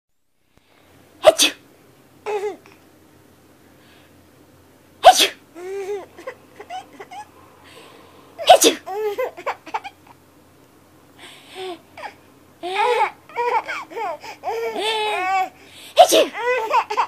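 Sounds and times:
person sneezing: 0:01.2 - 0:01.6, 0:05.0 - 0:05.4, 0:07.8 - 0:08.9, 0:15.8 - 0:16.4
baby giggling: 0:02.3 - 0:02.7, 0:05.6 - 0:07.3, 0:08.5 - 0:10.2, 0:11.6 - 0:17.0
baby squealing: 0:05.6 - 0:07.3.

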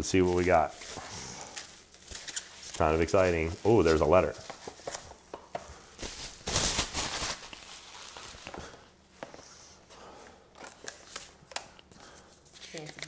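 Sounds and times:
paper and cardboard rustling: 0:00.0 - 0:05.3, 0:06.0 - 0:08.7.

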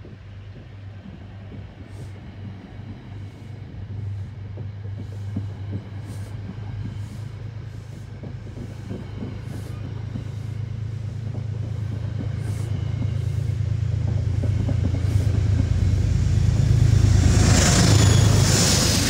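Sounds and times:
passenger train rolling past: 0:00.0 - 0:19.0.

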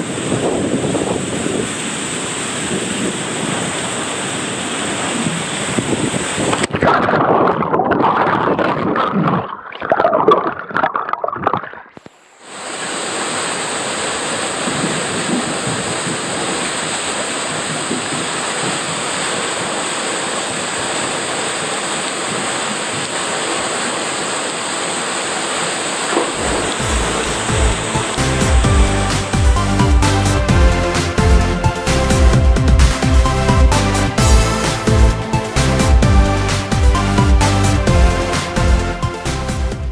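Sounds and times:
water splashing and bubbling: 0:00.0 - 0:38.2
water pouring into pool: 0:02.0 - 0:30.7
music: 0:26.4 - 0:39.9.

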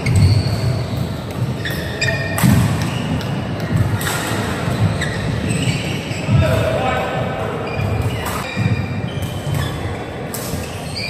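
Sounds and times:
shoe squeaks: 0:00.0 - 0:06.5, 0:07.6 - 0:11.0
racket striking shuttlecock: 0:01.2 - 0:04.6.

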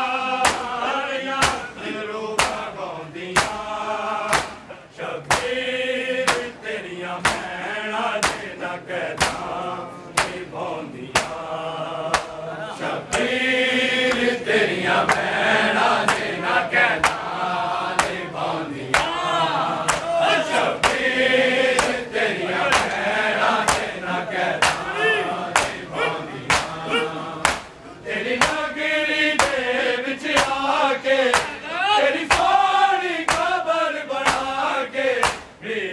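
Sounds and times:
men chanting a lament: 0:00.0 - 0:35.9
hands slapping chests: 0:00.4 - 0:00.8, 0:01.4 - 0:01.8, 0:02.4 - 0:02.7, 0:03.4 - 0:03.6, 0:04.2 - 0:05.6, 0:06.2 - 0:06.6, 0:07.2 - 0:07.5, 0:08.2 - 0:08.6, 0:09.2 - 0:10.5, 0:11.1 - 0:11.5, 0:12.1 - 0:12.4, 0:13.1 - 0:13.3, 0:14.1 - 0:14.4, 0:15.0 - 0:15.4, 0:16.0 - 0:16.4, 0:17.0 - 0:17.4, 0:18.0 - 0:18.3, 0:18.9 - 0:21.1, 0:21.7 - 0:22.1, 0:22.7 - 0:24.0, 0:24.6 - 0:25.9, 0:26.5 - 0:27.8, 0:28.4 - 0:28.6, 0:29.4 - 0:29.6, 0:30.3 - 0:30.7, 0:31.3 - 0:31.6, 0:32.3 - 0:32.6, 0:33.2 - 0:33.6, 0:34.2 - 0:34.6, 0:35.2 - 0:35.6.

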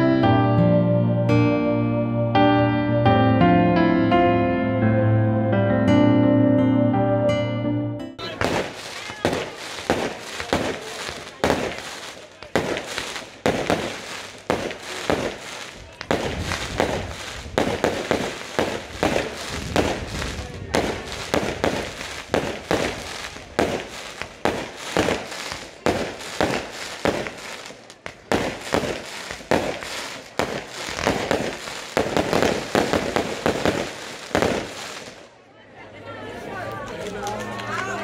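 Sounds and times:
firecrackers banging rapidly: 0:08.2 - 0:35.3.

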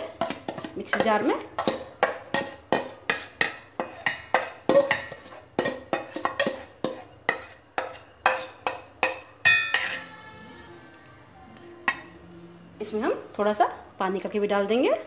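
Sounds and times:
spoon clinking in metal bowl: 0:00.0 - 0:10.2
ringing metal clang: 0:09.4 - 0:10.1.

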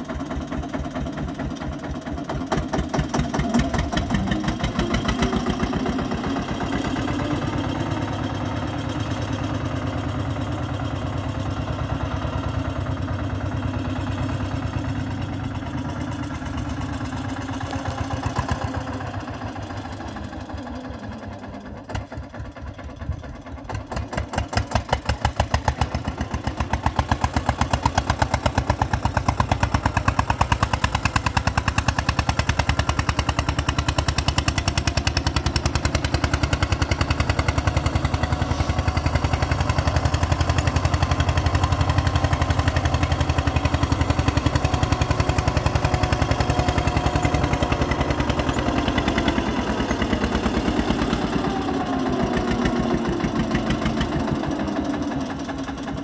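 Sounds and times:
tractor diesel engine chugging: 0:00.0 - 0:56.0.

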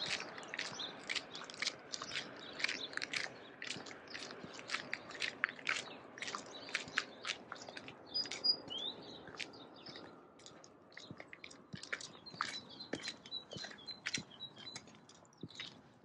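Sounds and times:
footsteps crunching in snow: 0:00.0 - 0:08.4.

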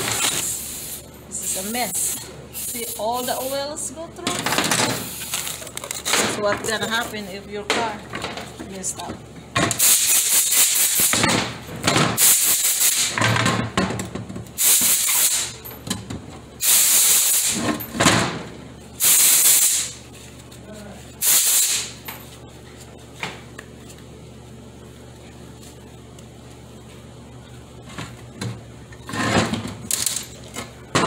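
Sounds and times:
short hissing spray blasts: 0:14.6 - 0:15.4, 0:16.6 - 0:17.6, 0:19.0 - 0:20.0, 0:21.2 - 0:21.9.

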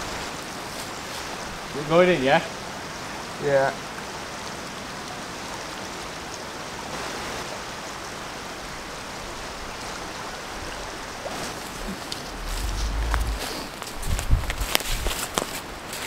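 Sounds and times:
river water rushing: 0:06.7 - 0:14.0
sharp crackles: 0:11.3 - 0:14.9.

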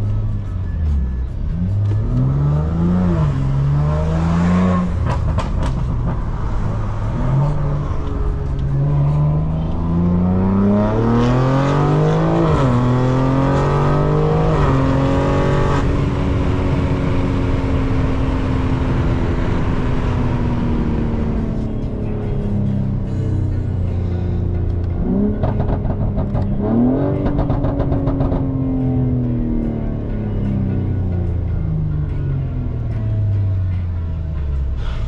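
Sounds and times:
car engine accelerating through gears: 0:00.7 - 0:33.8.

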